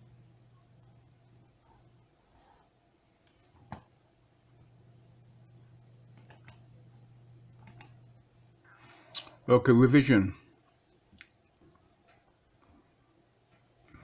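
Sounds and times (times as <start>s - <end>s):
low steady hum: 0.0s - 14.0s
faint clicks: 6.1s - 6.6s, 7.6s - 8.0s.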